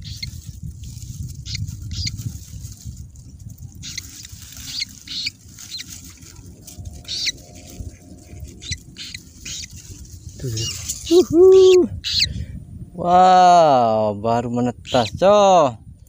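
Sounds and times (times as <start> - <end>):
chick peeping: 0.0 - 0.3, 3.8 - 6.0, 7.0 - 9.8
rustling dry grass nest: 0.0 - 12.3.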